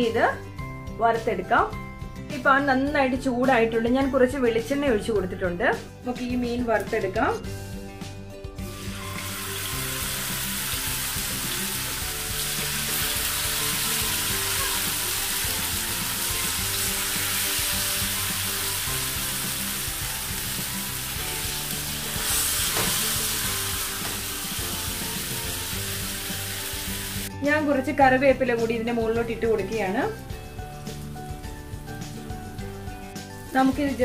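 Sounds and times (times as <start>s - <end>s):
fish sizzling in frying pan: 8.6s - 27.3s.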